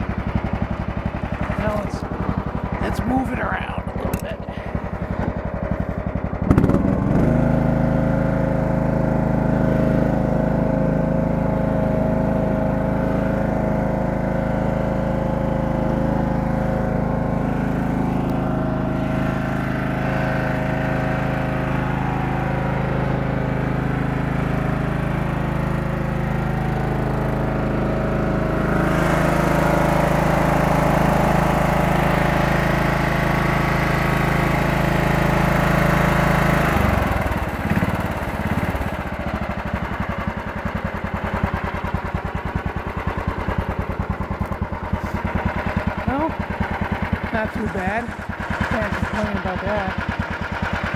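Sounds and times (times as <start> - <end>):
lawn tractor engine running: 0.0 - 50.9.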